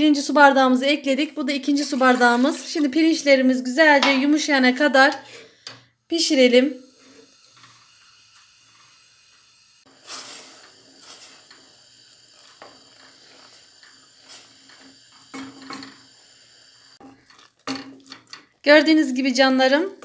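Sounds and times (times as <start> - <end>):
wooden spoon scraping pot: 17.0 - 18.7.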